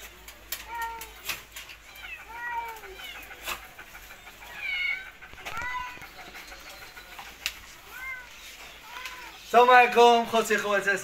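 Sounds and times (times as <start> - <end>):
high-pitched animal cries: 1.8 - 7.0.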